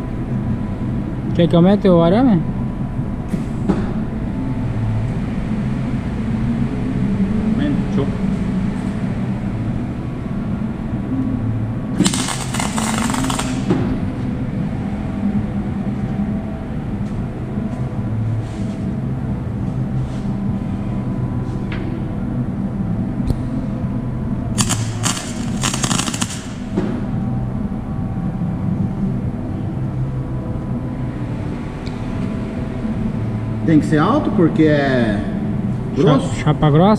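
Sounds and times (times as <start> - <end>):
low hum: 0.0 - 36.9
welder arc crackling: 12.0 - 13.7, 24.6 - 26.7.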